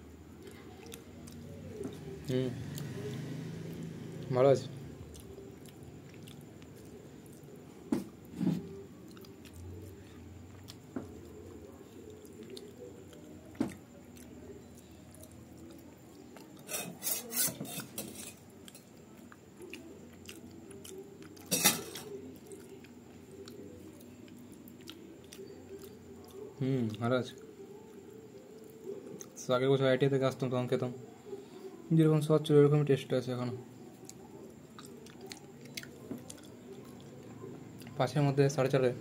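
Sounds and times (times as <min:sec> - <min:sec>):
metal spoon scraping in tin: 0:16.7 - 0:18.4.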